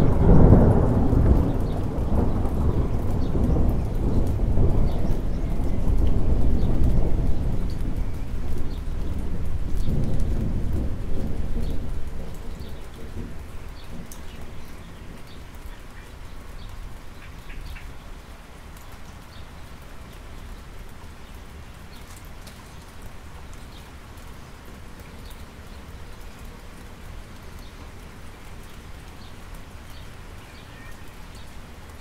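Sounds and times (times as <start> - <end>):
thunder rumbling: 0.0 - 15.9
rain on asphalt: 0.0 - 32.0
water drips: 0.0 - 32.0.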